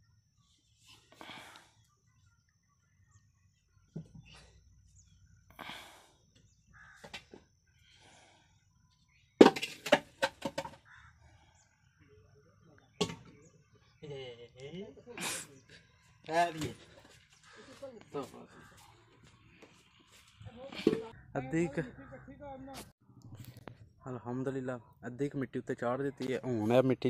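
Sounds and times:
metal bowl knocking and clattering: 9.4 - 10.8.

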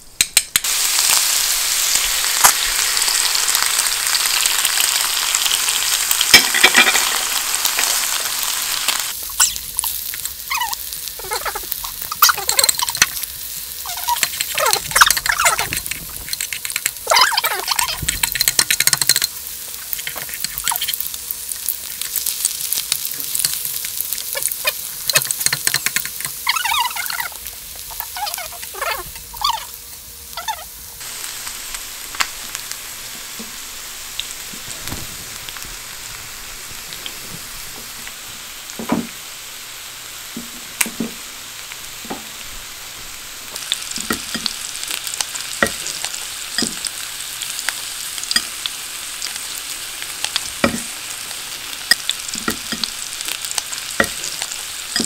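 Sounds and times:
food sizzling in butter: 0.6 - 55.0
chopsticks clicking against pan: 16.3 - 17.0, 18.1 - 19.3, 25.1 - 26.4.

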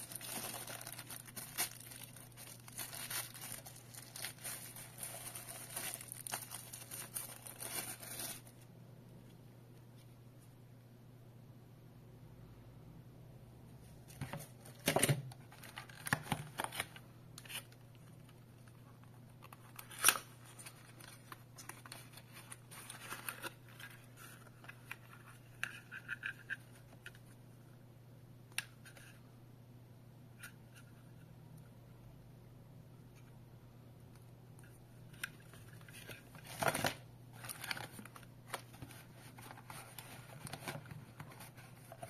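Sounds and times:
packaging rustling and crinkling: 0.0 - 8.6
faint low hum: 0.0 - 42.0.

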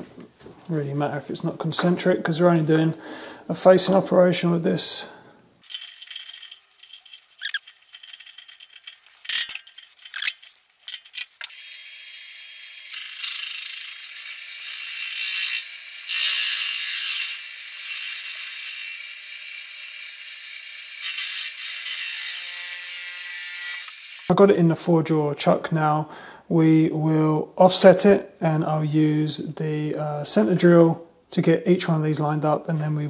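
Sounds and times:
high-pitched cutting hiss: 11.5 - 18.9.

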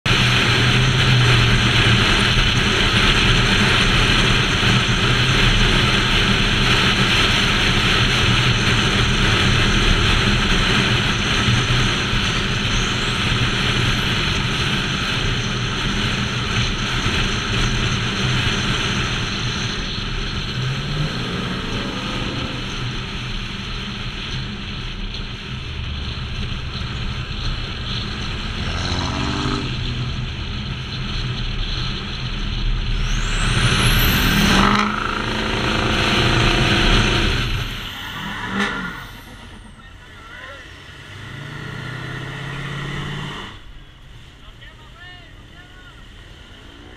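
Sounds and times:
engine accelerating: 0.0 - 46.9
engine hum: 0.0 - 46.9
wind and road noise: 0.0 - 46.9.

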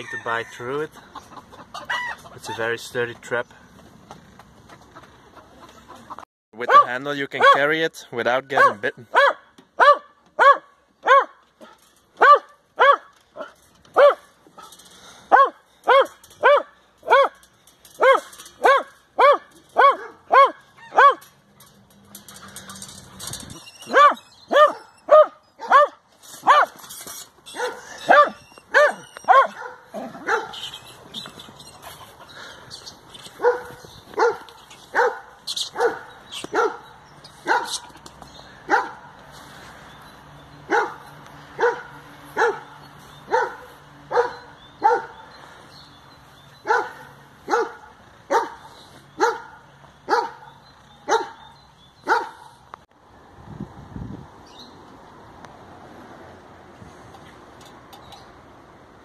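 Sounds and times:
dog barking: 6.6 - 7.7, 8.6 - 11.4, 12.2 - 14.3, 15.3 - 17.4, 18.0 - 21.2, 23.9 - 26.8, 27.6 - 30.6, 33.4 - 37.8, 38.7 - 39.1, 40.7 - 41.0, 41.6 - 42.7, 43.3 - 45.2, 46.6 - 50.5, 51.1 - 51.4, 52.0 - 52.5.

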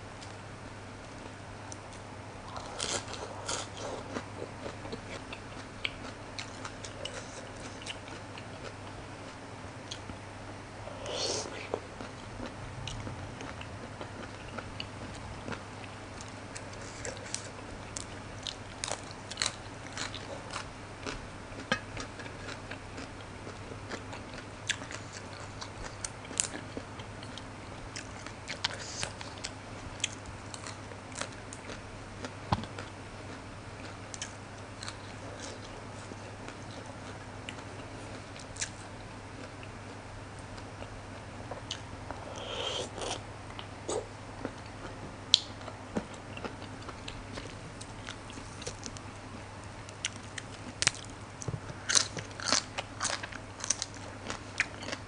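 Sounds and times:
close chewing and crunching: 1.7 - 10.2, 11.5 - 49.0, 49.8 - 55.0.

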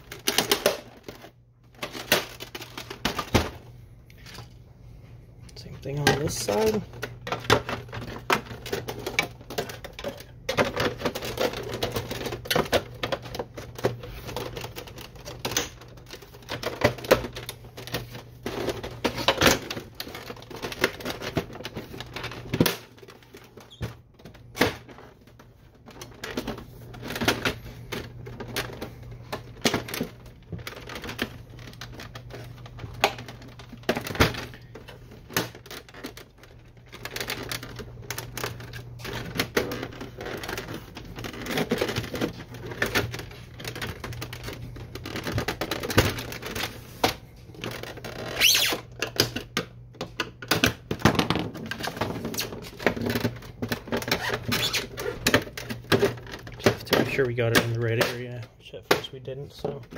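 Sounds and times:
plastic covers clicking and rattling: 0.0 - 4.6, 5.5 - 59.9.

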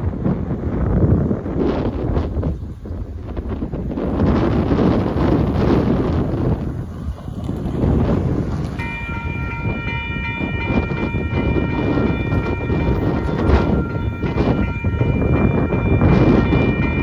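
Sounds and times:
wind buffeting microphone: 0.0 - 17.0
crossing warning bell ringing: 4.1 - 17.0.

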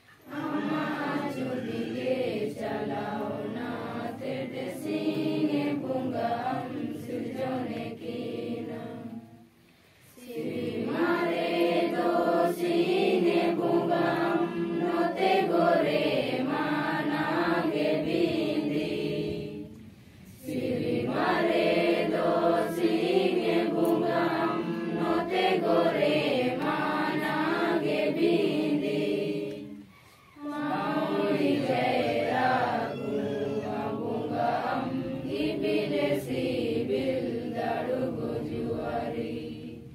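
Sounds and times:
group singing in unison: 0.0 - 39.9.

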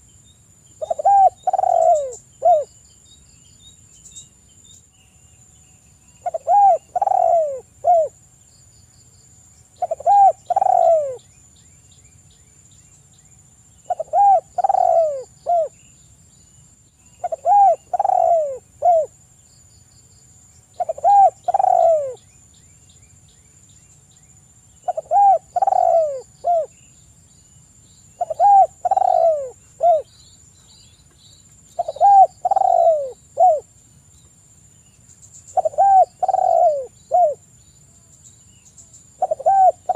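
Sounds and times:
dove cooing: 0.8 - 2.7, 6.2 - 8.2, 9.8 - 11.2, 13.9 - 15.8, 17.2 - 19.1, 20.8 - 22.2, 24.8 - 26.7, 28.2 - 30.1, 31.8 - 33.7, 35.5 - 37.4, 39.2 - 39.9.

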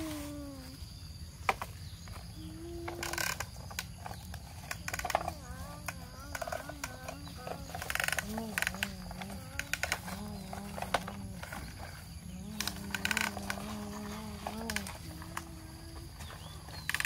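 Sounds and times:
child imitating truck engine: 0.0 - 0.8, 2.4 - 3.7, 4.9 - 16.2.

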